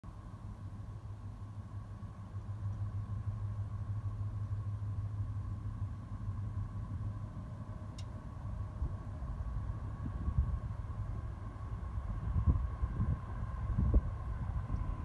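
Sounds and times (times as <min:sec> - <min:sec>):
low engine rumble: 0:00.0 - 0:15.0
click: 0:07.9 - 0:08.2.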